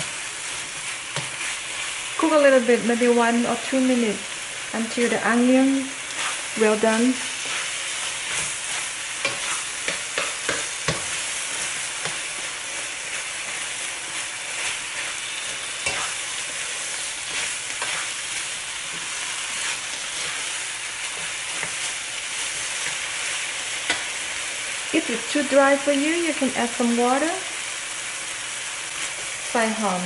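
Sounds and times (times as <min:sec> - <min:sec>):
food sizzling in a wok: 0:00.0 - 0:30.0
spatula scraping a pan: 0:05.8 - 0:24.2.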